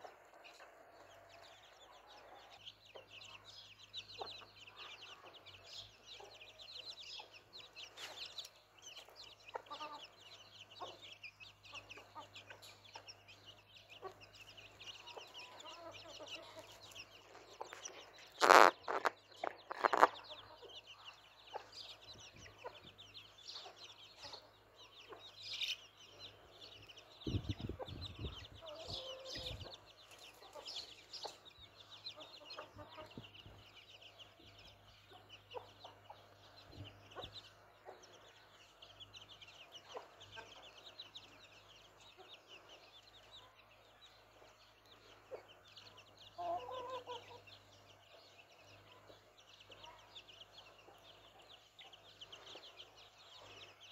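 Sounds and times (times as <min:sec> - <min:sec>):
chicks peeping: 0:00.0 - 0:53.9
hen clucking: 0:09.4 - 0:13.3, 0:13.9 - 0:22.9, 0:27.3 - 0:33.6, 0:46.4 - 0:47.5.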